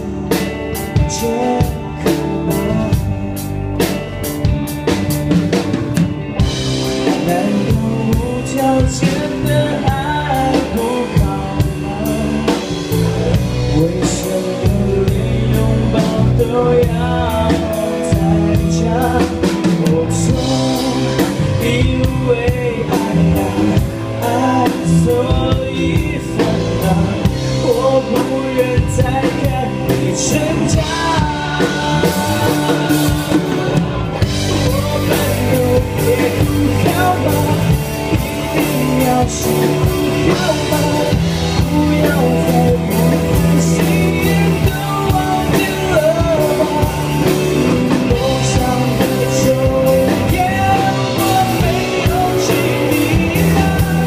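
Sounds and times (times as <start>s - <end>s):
man singing: 0.0s - 4.9s, 6.7s - 54.0s
drum kit: 0.0s - 54.0s
electric guitar: 0.0s - 54.0s.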